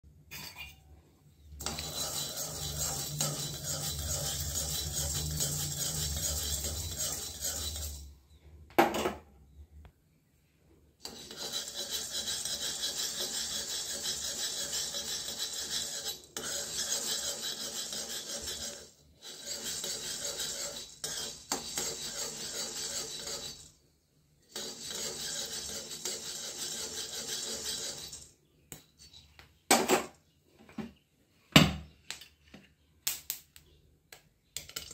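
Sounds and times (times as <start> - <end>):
spoon scraping grains in metal pan: 1.4 - 8.2, 11.0 - 23.8, 24.4 - 28.4.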